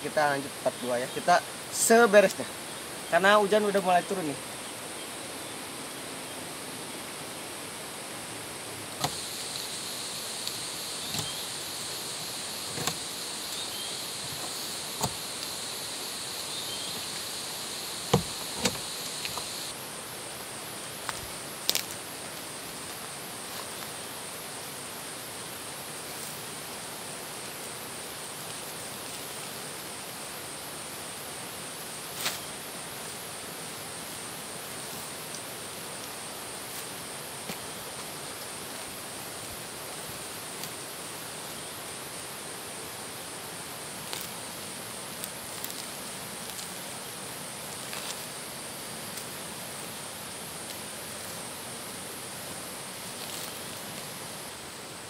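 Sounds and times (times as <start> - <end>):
high pulsing insect buzz: 0.0 - 55.0
light rain hiss: 0.0 - 55.0
lower insect buzz: 0.0 - 55.0
branches snapping: 21.0 - 22.0.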